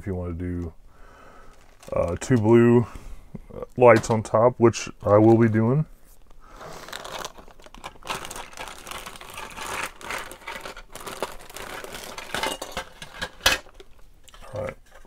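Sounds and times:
plastic bag crinkling: 1.4s - 2.7s, 6.2s - 14.6s.

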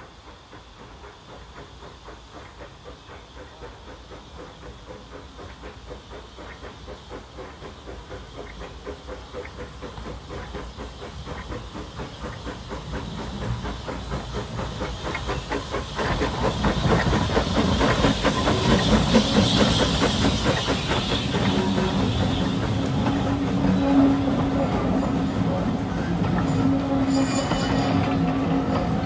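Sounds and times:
hiss of steam: 0.0s - 29.0s
steam locomotive exhaust chuffing: 0.0s - 29.0s.

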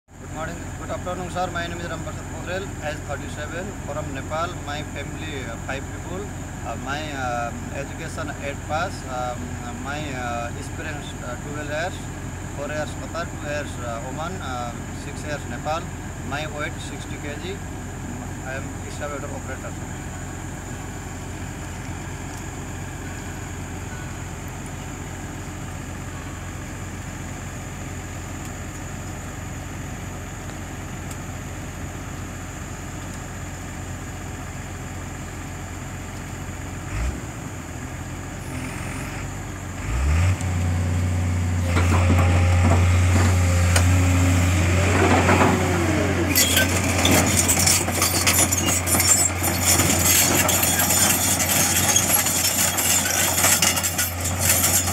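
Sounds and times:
excavator diesel engine: 0.1s - 54.9s
hydraulic whine: 38.4s - 40.7s, 41.5s - 54.9s.

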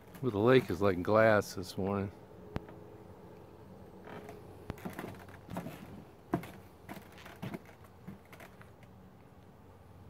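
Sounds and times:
footsteps on a wooden dock: 4.1s - 8.6s.

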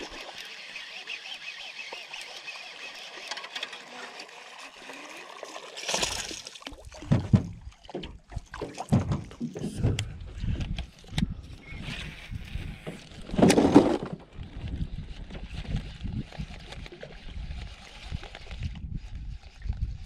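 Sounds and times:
fishing rod and reel handling: 0.0s - 4.9s, 14.4s - 20.0s
waves slapping against boat hull: 5.9s - 10.1s.

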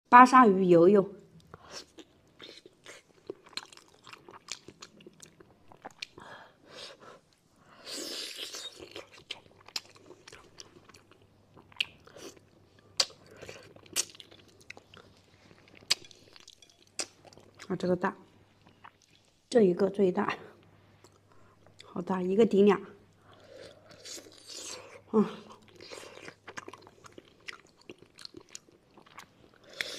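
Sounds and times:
chewing with wet mouth clicks: 1.4s - 6.2s, 8.3s - 17.7s, 23.1s - 29.9s.

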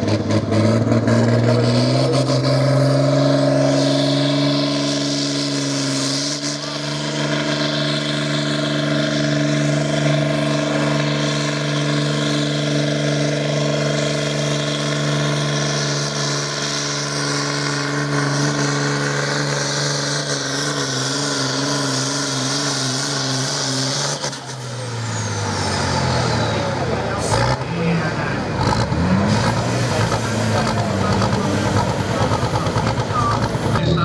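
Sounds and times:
tractor engine at high revs: 0.0s - 34.0s.

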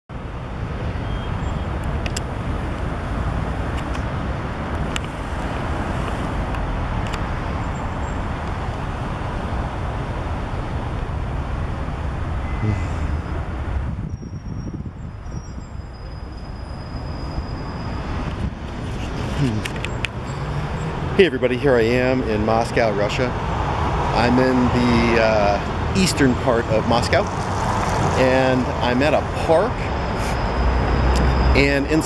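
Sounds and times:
city street rumble: 0.1s - 32.0s.

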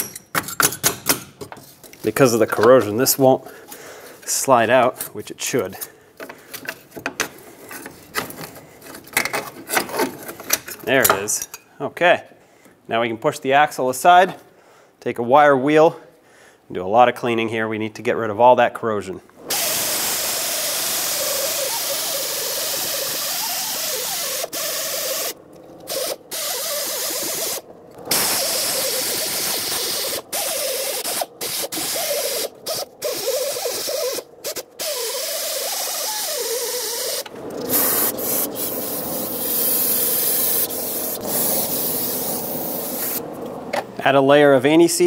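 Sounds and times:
hissing spray: 19.5s - 43.2s
wire wheel air tool scrubbing rust: 19.5s - 43.2s.

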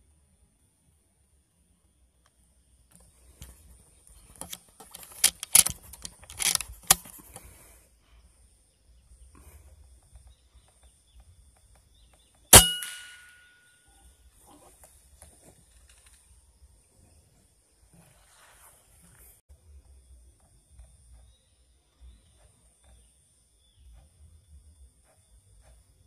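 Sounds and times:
gun handling knocks and clicks: 4.2s - 7.4s
air rifle shot: 12.5s - 13.6s.

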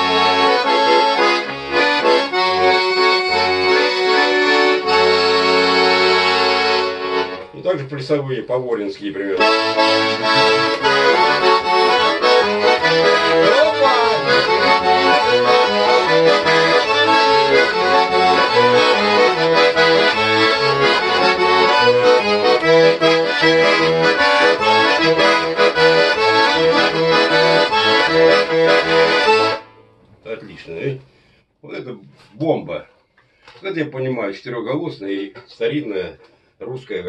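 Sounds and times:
accordion playing dance tune: 0.0s - 7.8s, 9.2s - 29.8s.

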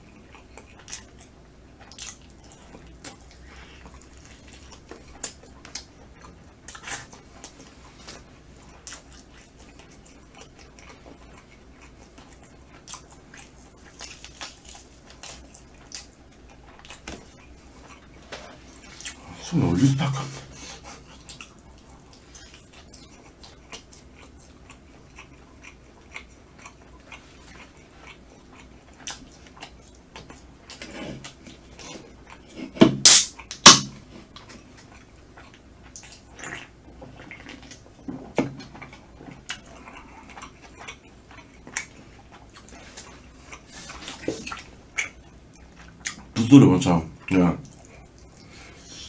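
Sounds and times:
chewing with wet clicks: 0.0s - 19.2s, 20.8s - 46.4s, 47.2s - 48.8s
soda can cracked open: 33.0s - 33.9s.

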